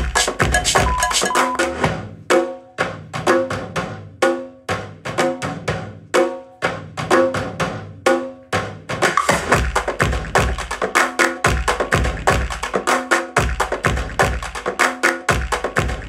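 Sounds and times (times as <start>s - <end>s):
percussion-heavy music on speakers: 0.0s - 16.0s.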